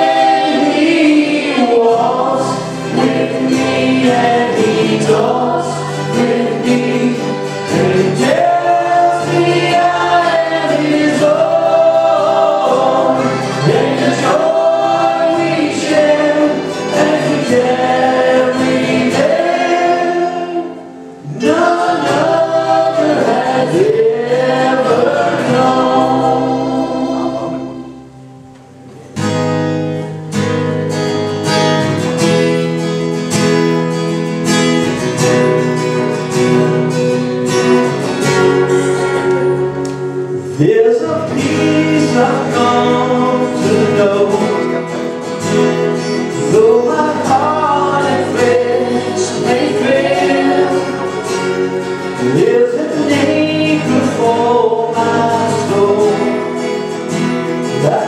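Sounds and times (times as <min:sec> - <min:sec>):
person singing: 0:00.0 - 0:28.2, 0:40.6 - 0:45.1, 0:46.1 - 0:56.9
electric guitar: 0:00.0 - 0:58.0
keyboard: 0:00.0 - 0:58.0
strummed acoustic guitars: 0:00.0 - 0:58.0.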